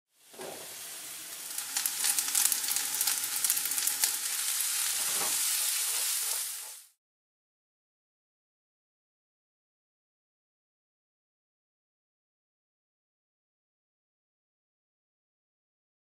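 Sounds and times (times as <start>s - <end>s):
frying sizzle with crackles: 0.1s - 7.0s.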